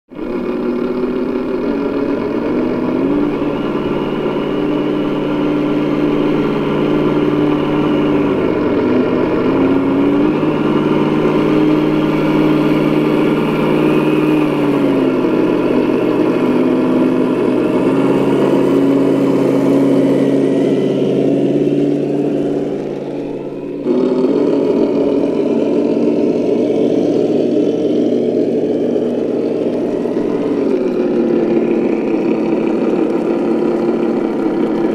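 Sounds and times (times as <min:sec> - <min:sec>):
electric motor and gearbox whining: 0:00.1 - 0:34.9.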